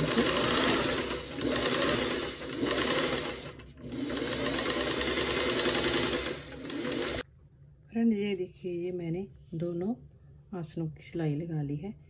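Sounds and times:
sewing machine running: 0.0 - 7.2.

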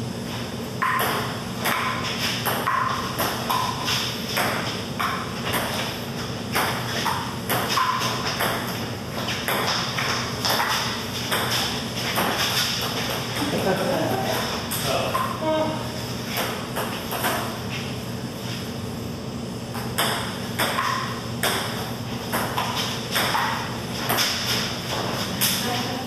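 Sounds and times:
table tennis ball hitting paddles: 0.8 - 13.5, 16.3 - 17.6, 19.7 - 25.6.

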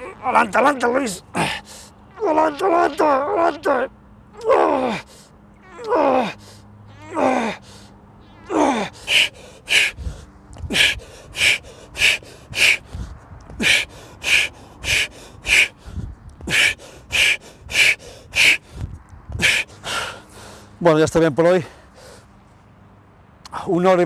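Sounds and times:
man groaning: 0.0 - 5.1, 7.0 - 7.6, 8.5 - 10.0
man panting hard: 1.3 - 2.0, 4.9 - 5.4, 6.2 - 6.8, 7.5 - 8.0, 8.6 - 20.8.

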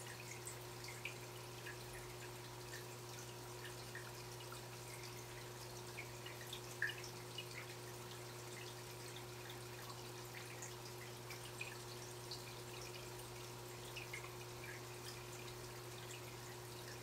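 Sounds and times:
aquarium water gurgling: 0.0 - 17.0.

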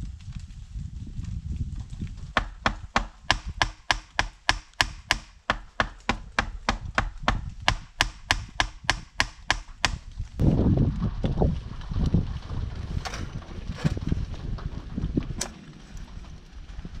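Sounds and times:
hammering on wooden plank: 2.4 - 10.0.

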